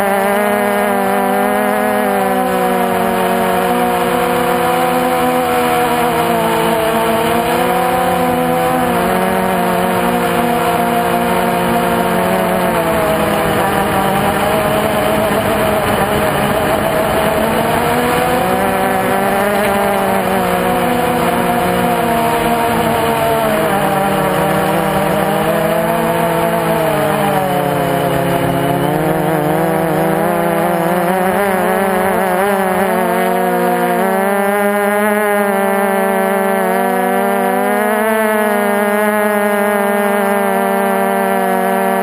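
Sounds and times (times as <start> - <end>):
drone motors whining: 0.0 - 42.0.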